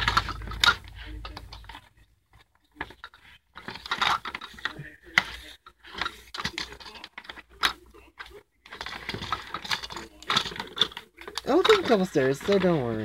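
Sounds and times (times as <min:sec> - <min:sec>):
plastic toys rattling in a bowl: 0:00.0 - 0:13.0.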